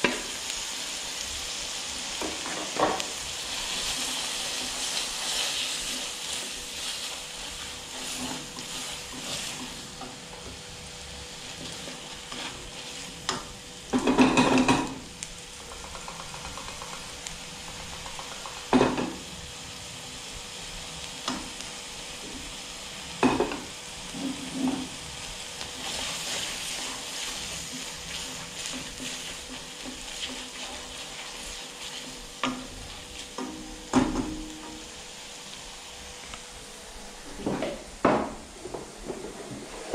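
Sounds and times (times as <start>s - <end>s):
food sizzling in a wok: 0.0s - 39.9s
utensil scraping and knocking wok: 2.2s - 10.6s, 11.3s - 19.4s, 23.2s - 35.0s.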